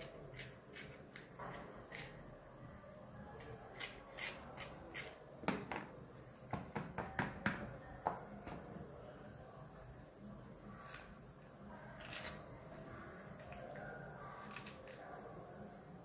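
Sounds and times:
knife cutting chillies on board: 3.7 - 5.2.

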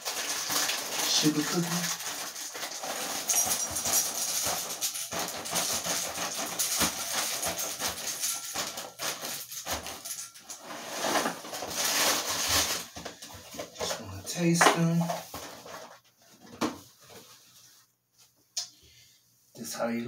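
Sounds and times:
cereal pouring into glass bowl: 0.0 - 12.7.

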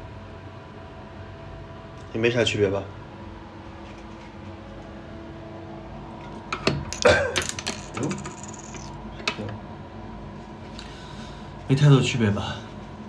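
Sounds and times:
ventilation hum: 0.0 - 13.0
small objects knocking and clattering: 6.9 - 9.0.

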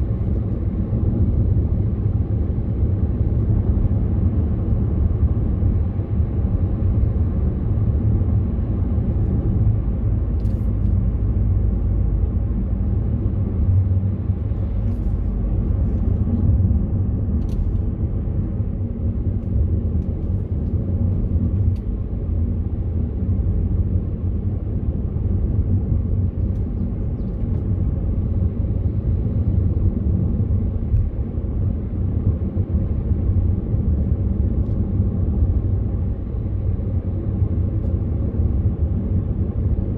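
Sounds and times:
car engine and tyre noise: 0.0 - 39.9.

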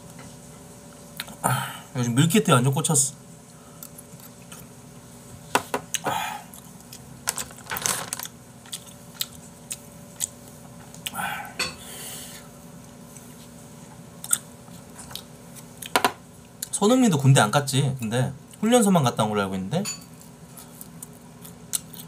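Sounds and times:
spoon clinking on dishes: 19.8 - 20.1.

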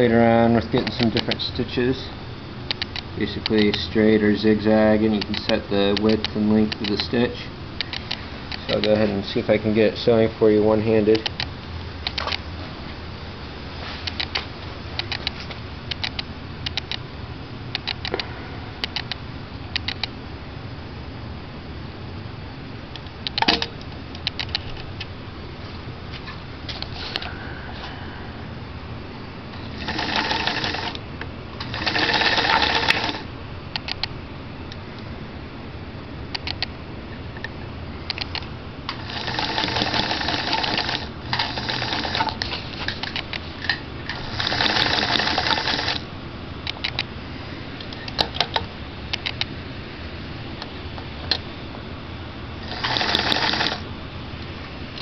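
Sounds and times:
sewing machine stitching: 29.7 - 31.0, 31.6 - 33.3, 39.0 - 42.4, 44.1 - 46.0, 52.6 - 53.8.

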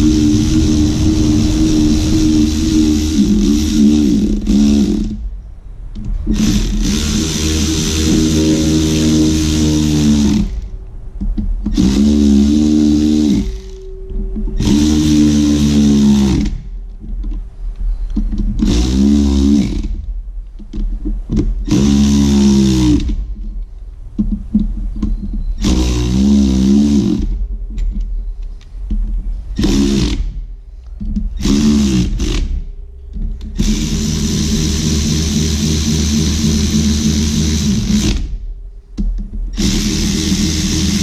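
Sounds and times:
electric ratchet motor buzzing: 0.0 - 5.3, 6.3 - 10.7, 11.7 - 13.9, 14.6 - 16.7, 18.6 - 20.0, 21.6 - 23.3, 25.6 - 27.4, 29.6 - 30.4, 31.4 - 32.7, 33.5 - 38.4, 39.5 - 41.0.

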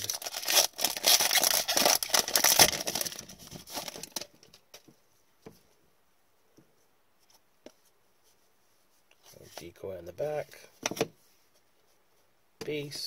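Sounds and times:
foil wrapper tearing and crinkling: 0.0 - 4.3.

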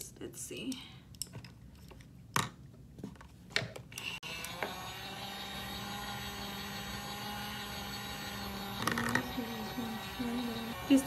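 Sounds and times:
small electric motor humming: 4.0 - 11.0.

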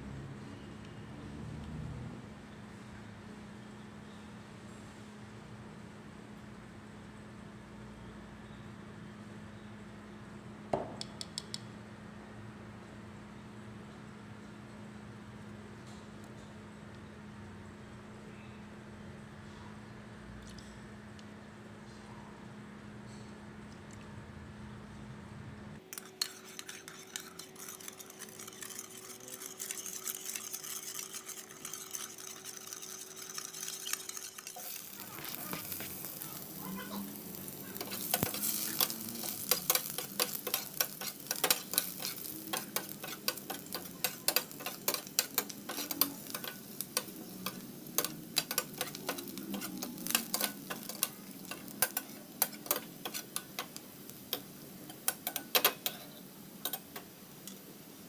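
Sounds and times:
crackles of spattering oil: 25.8 - 56.0
spoon stirring sauce in ceramic bowl: 25.8 - 56.9
ginger frying in oil: 25.8 - 58.0.

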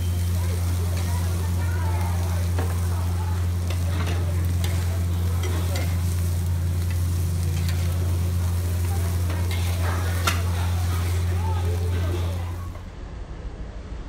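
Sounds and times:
omelette sizzling on a wok: 0.0 - 12.9
steady low hum: 0.0 - 14.0
metal spatula scraping: 3.6 - 12.6.

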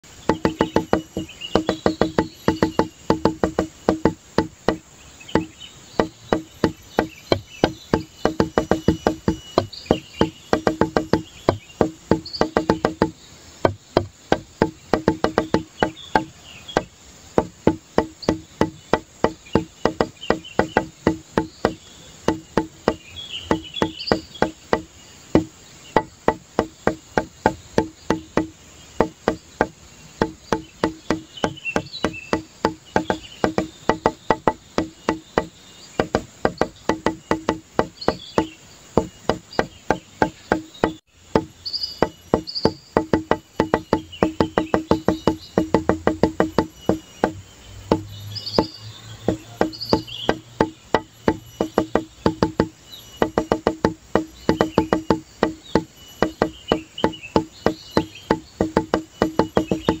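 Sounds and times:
music with fast clicking beat: 0.1 - 60.0.

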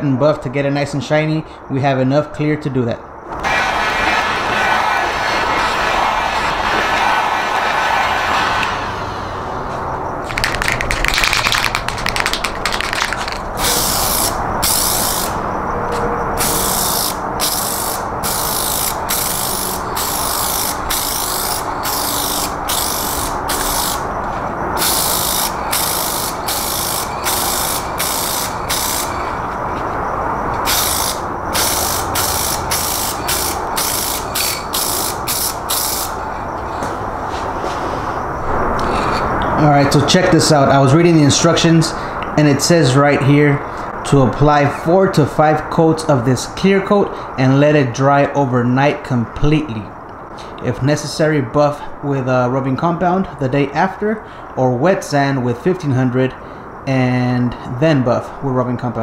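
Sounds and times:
low rushing noise: 3.2 - 44.4
spray can hissing: 10.3 - 15.4, 16.4 - 24.0, 24.8 - 29.2, 30.6 - 36.2
spray can rattling: 10.3 - 15.4, 16.4 - 24.0, 24.8 - 29.2, 30.6 - 36.2.

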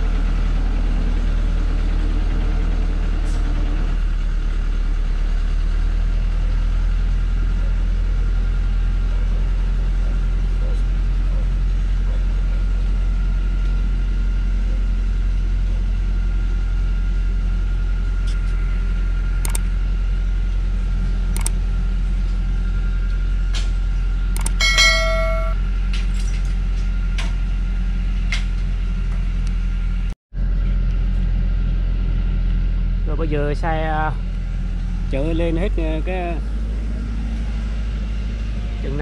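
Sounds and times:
truck engine running under load: 0.0 - 39.0
brief metallic ring: 24.4 - 25.6.

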